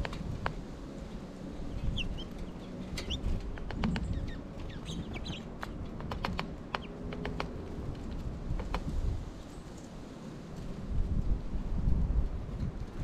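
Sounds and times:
small birds chipping: 0.0 - 10.2
wind rumble on microphone: 0.0 - 13.0
sharp clicks and taps: 5.6 - 7.6.

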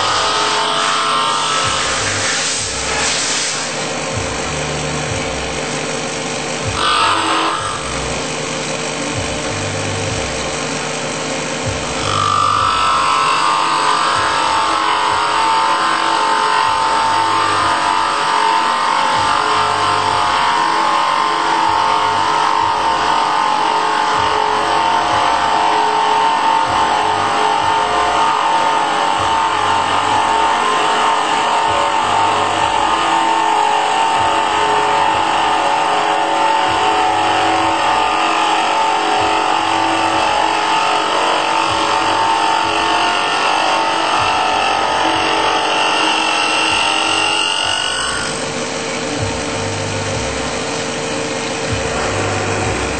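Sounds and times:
end mill cutting wood: 0.0 - 52.9
router spindle whine: 0.0 - 52.9.

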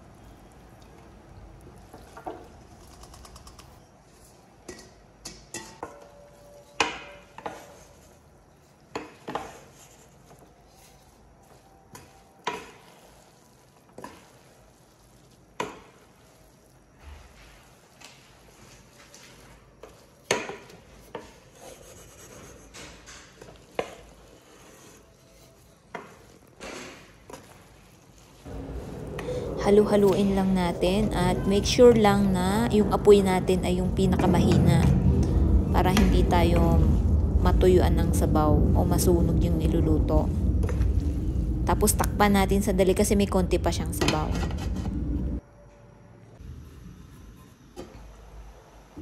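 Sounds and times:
food rustling: 0.0 - 5.2, 6.0 - 32.8
wooden spatula scraping metal pot: 1.8 - 37.1, 42.3 - 45.4.

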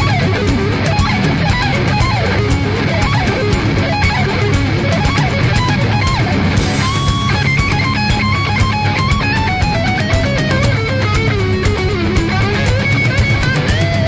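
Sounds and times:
music with loud guitar: 0.0 - 14.0.

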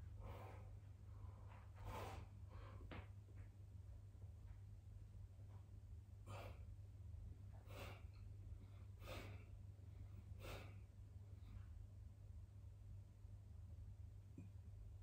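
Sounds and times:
man breathing forcefully: 0.2 - 0.8, 1.8 - 3.0, 6.2 - 6.7, 7.5 - 10.9.

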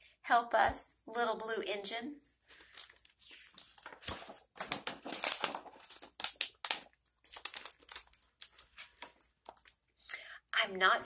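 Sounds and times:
paper rustling and crinkling: 2.3 - 9.8.

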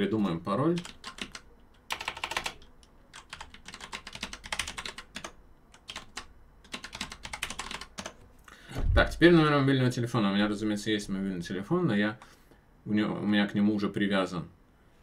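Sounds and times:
typing on computer keyboard: 0.7 - 8.2.

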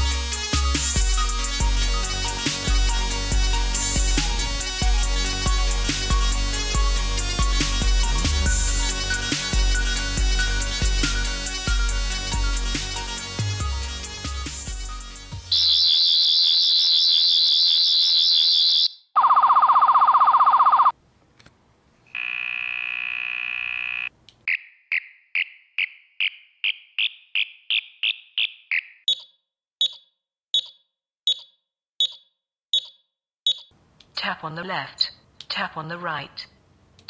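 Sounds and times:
buzzing tone: 22.1 - 24.1.

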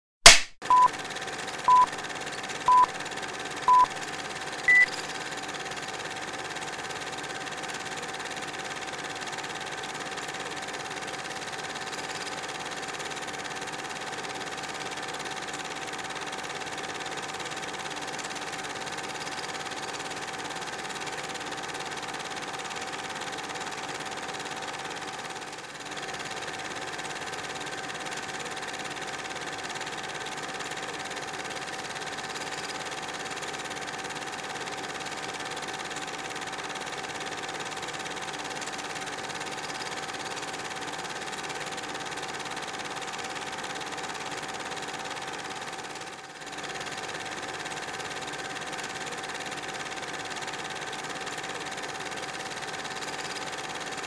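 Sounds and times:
film projector whirring: 0.7 - 54.0
countdown beeps: 1.7 - 1.9, 3.7 - 3.9, 4.7 - 5.0.

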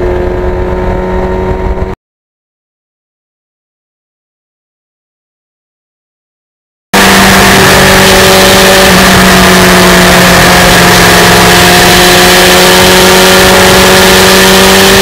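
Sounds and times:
motorcycle engine cruising: 0.0 - 2.0, 7.0 - 15.0
wind noise rushing: 0.0 - 2.0.

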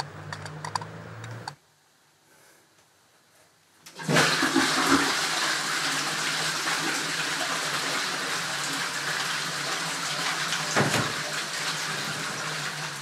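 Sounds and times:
tap water running into basin: 3.9 - 13.0.

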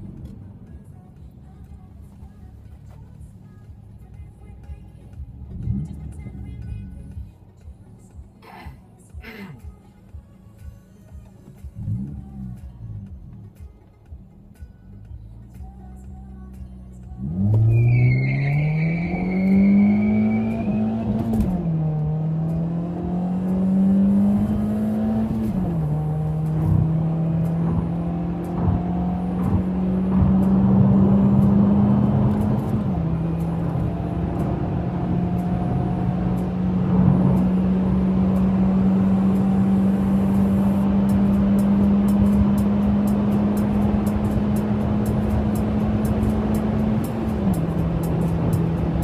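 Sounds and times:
car engine revving: 0.0 - 7.2, 11.6 - 13.6, 17.1 - 49.0
high squeal: 17.6 - 21.1.

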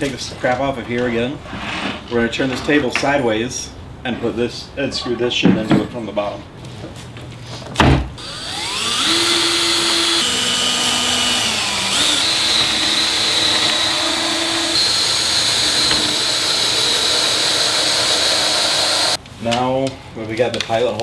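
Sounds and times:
power drill whining: 8.2 - 19.2.

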